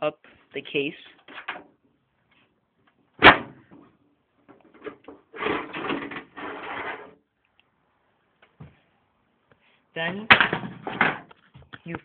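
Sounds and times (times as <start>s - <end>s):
metal panel scraping and rattling: 4.8s - 7.2s.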